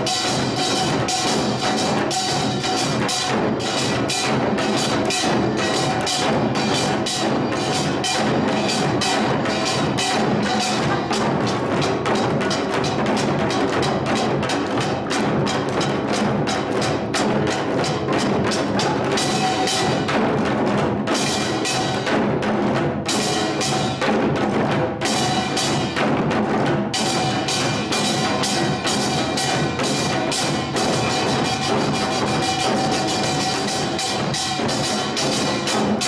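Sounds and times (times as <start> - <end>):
drums beating fast rhythm: 0.0 - 36.0.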